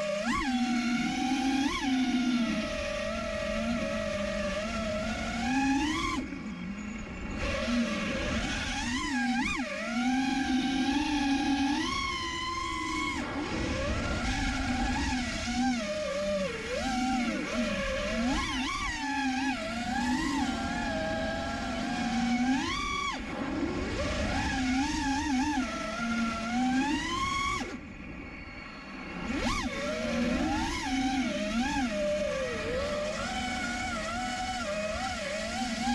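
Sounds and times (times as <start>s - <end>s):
quadcopter motors whining: 0.0s - 35.9s.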